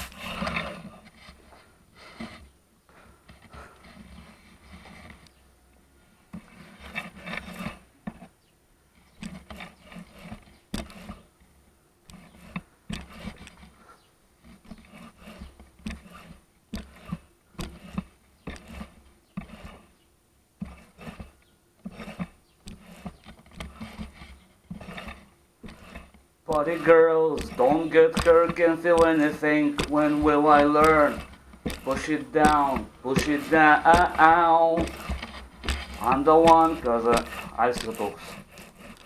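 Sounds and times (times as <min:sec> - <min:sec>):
paint roller rolling in tray: 0:00.0 - 0:02.5, 0:03.3 - 0:05.4, 0:06.3 - 0:08.4, 0:09.0 - 0:11.4, 0:12.1 - 0:13.8, 0:14.4 - 0:20.0, 0:20.6 - 0:39.0
sharp knocks: 0:24.7 - 0:39.0.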